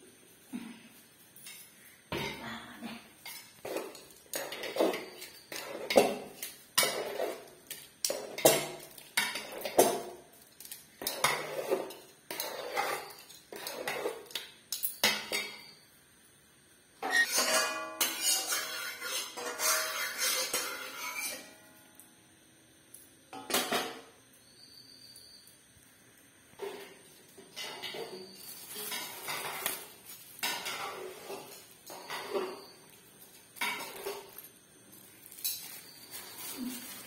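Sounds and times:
metal ladle scraping a pot: 0:11.0 - 0:14.4, 0:17.0 - 0:21.5.

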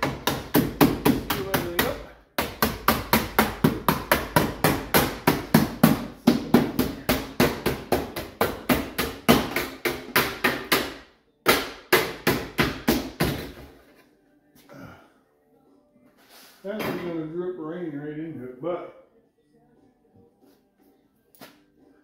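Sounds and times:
mallet pounding metal siding: 0:00.0 - 0:13.6.

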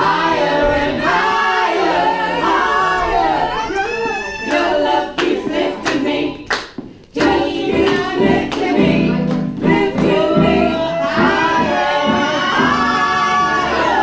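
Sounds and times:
people singing together: 0:00.0 - 0:14.0
hand claps: 0:04.5 - 0:10.2.

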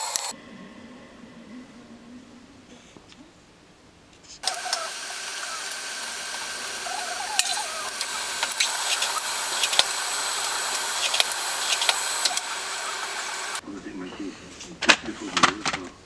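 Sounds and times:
drill press whirring: 0:04.4 - 0:13.6.

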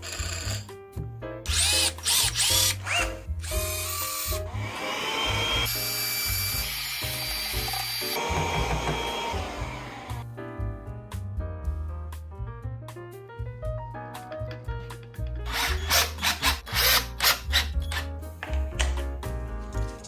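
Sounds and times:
power drill whining: 0:01.5 - 0:10.2
vacuum cleaner running: 0:04.5 - 0:05.7, 0:06.6 - 0:10.2.

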